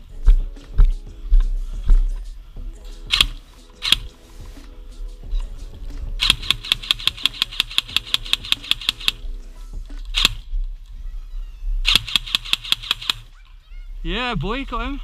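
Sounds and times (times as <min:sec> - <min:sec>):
airsoft gun firing: 0:03.1 - 0:04.1, 0:06.2 - 0:09.2, 0:10.1 - 0:10.5, 0:11.8 - 0:13.4.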